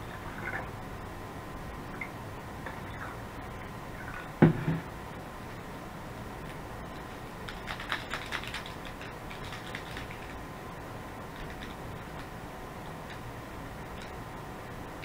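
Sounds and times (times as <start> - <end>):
thump on tabletop: 4.4 - 4.9.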